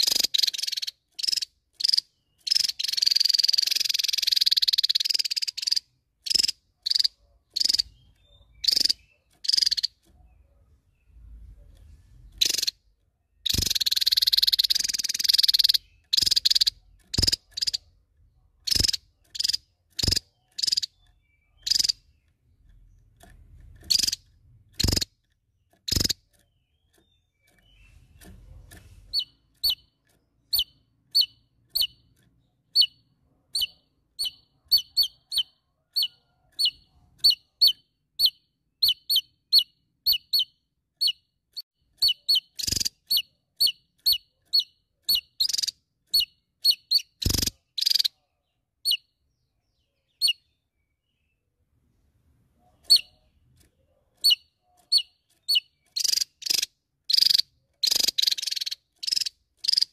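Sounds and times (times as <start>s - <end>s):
bird calling: 0.0s - 11.1s, 13.4s - 18.0s, 18.6s - 22.3s, 52.6s - 59.9s.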